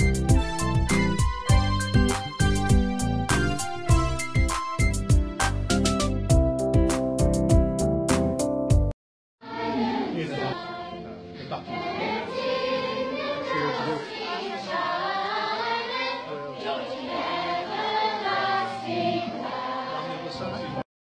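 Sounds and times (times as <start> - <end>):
children's choir singing: 9.4 - 20.8.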